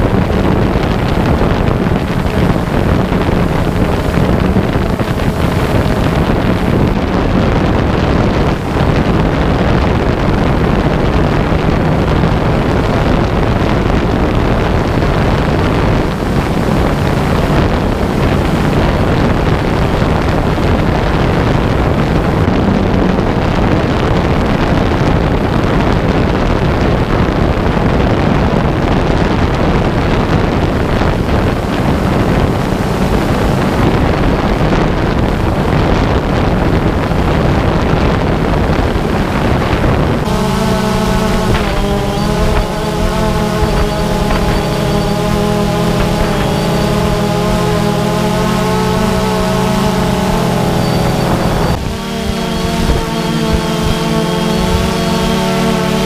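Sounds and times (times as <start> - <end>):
drone motors humming: 0.0 - 56.0
wind rush on microphone: 0.0 - 56.0.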